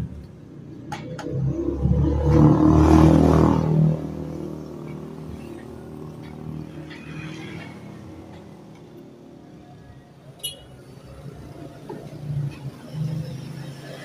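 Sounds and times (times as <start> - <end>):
motor vehicle engine: 0.0 - 10.1.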